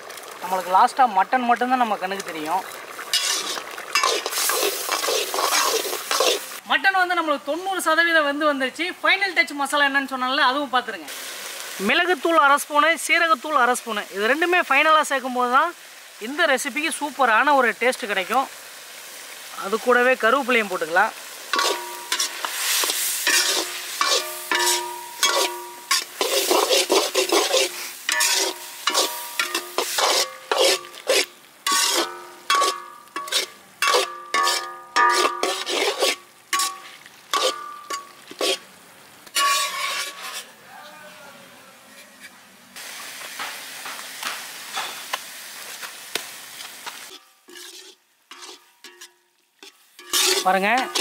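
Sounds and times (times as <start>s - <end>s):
meat sizzling: 0.0s - 7.0s, 9.6s - 40.9s, 42.3s - 51.0s
metal ladle scraping a pan: 2.6s - 6.6s, 21.5s - 40.6s, 47.1s - 51.0s.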